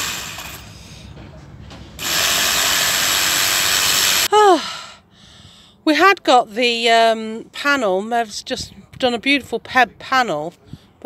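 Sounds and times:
power tool running: 0.0s - 0.8s, 2.0s - 4.3s.

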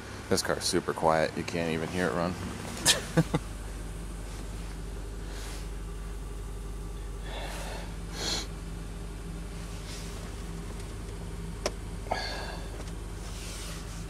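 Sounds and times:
car engine idling: 0.0s - 14.0s
person breathing: 5.2s - 5.8s, 7.2s - 8.6s, 12.1s - 12.8s.

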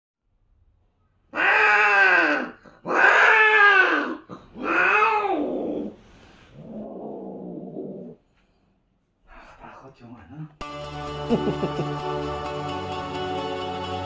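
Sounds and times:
cat yowling: 1.3s - 6.0s.

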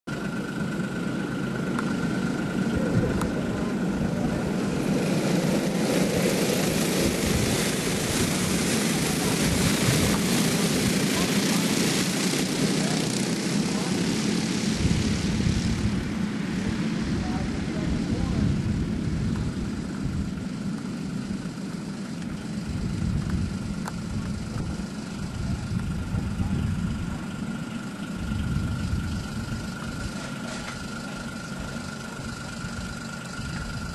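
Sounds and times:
racing kart engines droning: 0.1s - 33.9s.

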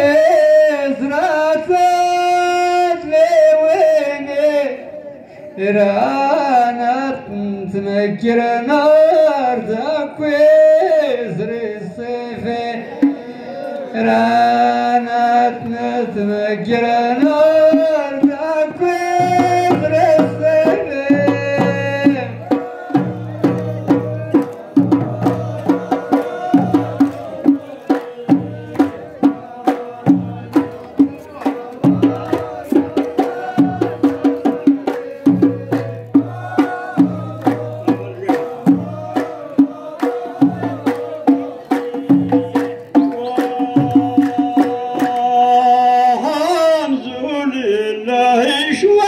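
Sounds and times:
person singing: 12.4s - 49.0s
hand drums beating: 17.5s - 45.8s.

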